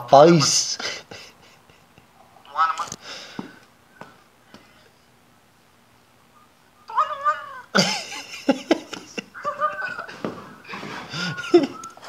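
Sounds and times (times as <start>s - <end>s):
cat-like wailing cries: 2.4s - 3.1s, 6.8s - 7.8s, 9.2s - 12.0s.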